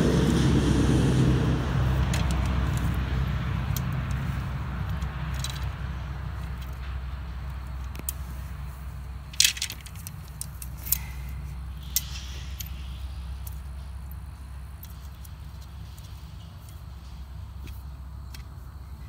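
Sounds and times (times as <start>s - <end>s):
steady low rumble: 0.0s - 19.0s
plastic poles clicking and knocking: 9.3s - 11.1s.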